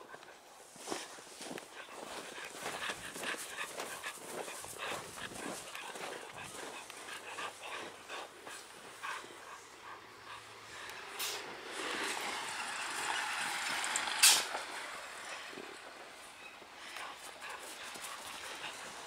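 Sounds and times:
footsteps crunching snow: 0.6s - 9.3s.

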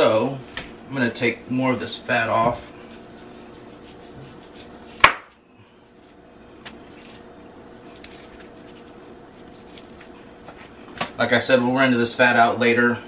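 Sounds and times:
knife slicing meat: 3.1s - 5.2s.

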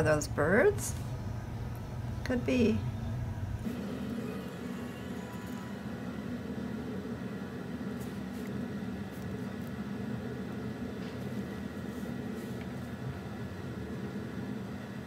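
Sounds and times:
room background hum: 0.0s - 15.0s.

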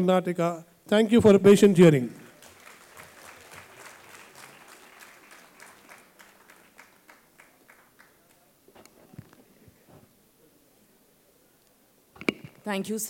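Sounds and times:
audience applauding: 2.2s - 8.5s.

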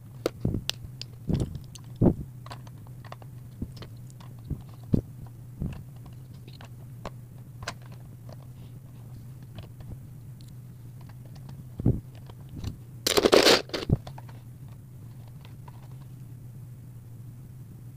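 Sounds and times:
low hum: 0.0s - 17.9s
plastic bricks clicking together: 13.1s - 14.2s.

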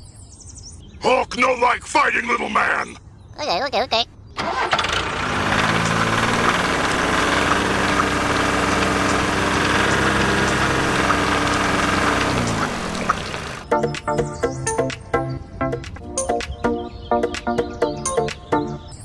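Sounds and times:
tractor engine running under load: 4.4s - 13.7s.

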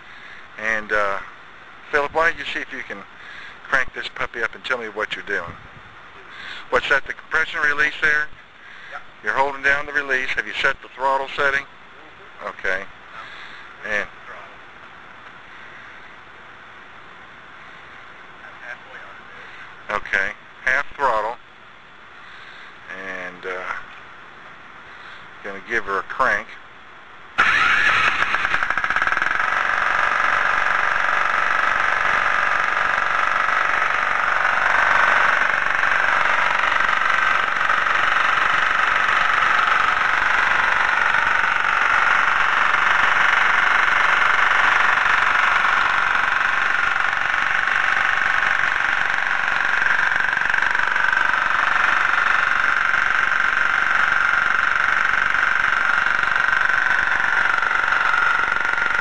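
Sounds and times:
diesel engine running: 27.4s - 59.0s.

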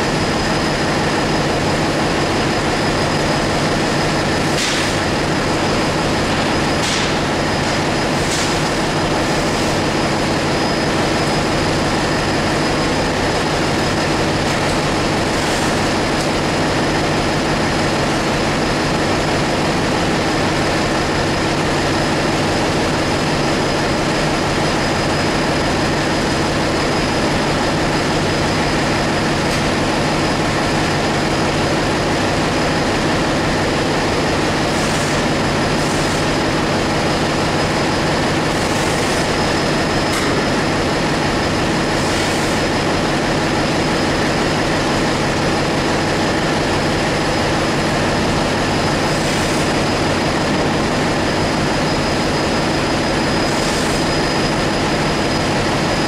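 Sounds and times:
engine room machinery running: 0.0s - 56.0s.

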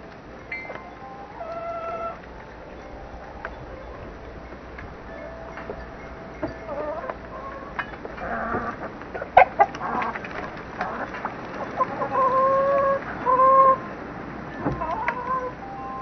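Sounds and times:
long steady-pitched calls: 0.0s - 8.9s, 14.8s - 16.0s
chickens clucking: 0.0s - 16.0s.

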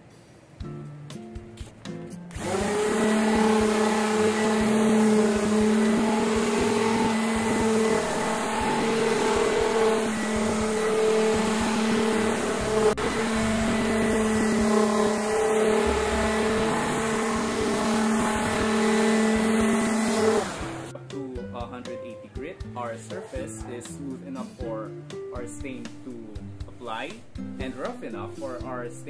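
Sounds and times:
orbital sander humming on wood: 2.3s - 20.9s.

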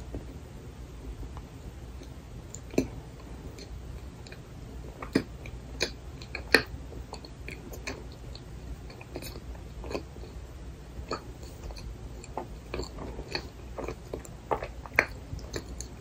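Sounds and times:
chewing frozen bread: 2.0s - 10.4s, 11.0s - 16.0s
wet mouth clicks: 5.0s - 10.4s.

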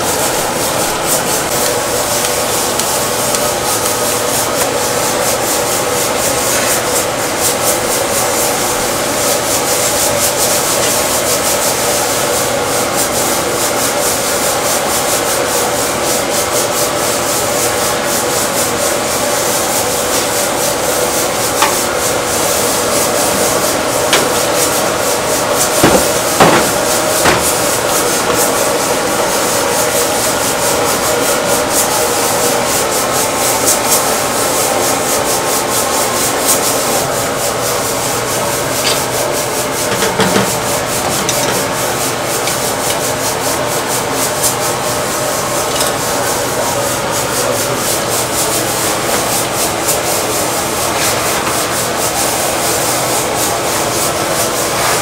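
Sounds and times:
hands scrubbing salt into meat: 0.1s - 12.1s
sharp knocks: 25.8s - 27.7s.

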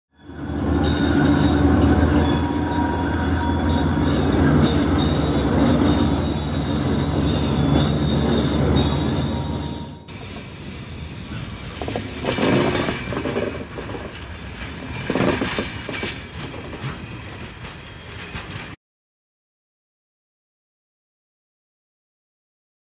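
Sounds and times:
high-pitched squealing: 0.2s - 10.4s
locomotive engine passing: 0.2s - 18.7s.

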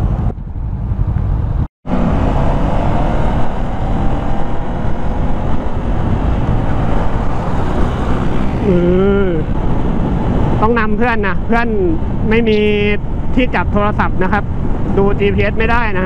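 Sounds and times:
motorcycle engine: 0.0s - 10.6s
wind rush on microphone: 0.0s - 16.0s.

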